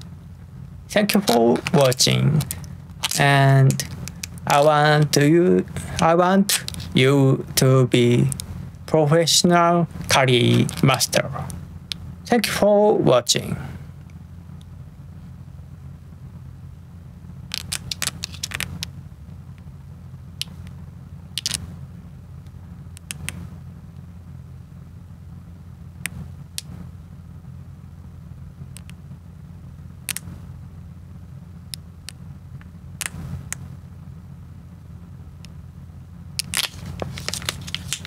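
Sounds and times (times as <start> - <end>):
steady low hum: 0.0 - 38.0
food pouches crinkling: 36.4 - 38.0.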